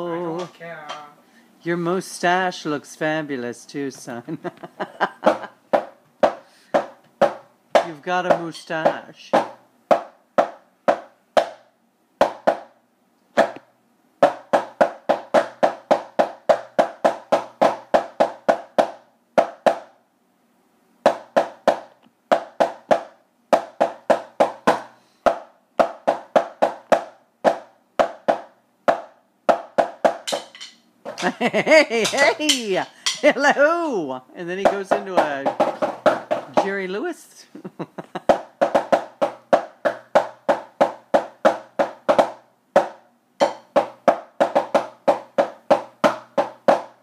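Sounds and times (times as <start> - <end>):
drumsticks striking a practice pad: 5.3 - 12.7, 13.4 - 13.6, 14.2 - 19.9, 21.1 - 31.4, 32.0 - 33.4, 38.3 - 47.0.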